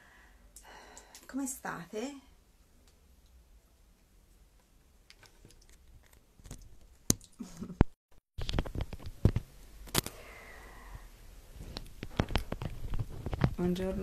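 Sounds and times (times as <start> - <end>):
earphone cable handling: 5.1 - 7.3, 8.4 - 10.1, 11.7 - 13.6.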